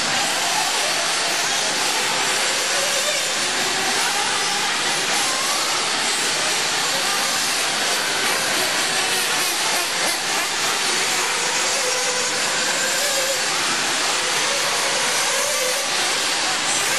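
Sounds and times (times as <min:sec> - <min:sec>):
model buggy engines buzzing: 0:00.0 - 0:16.9.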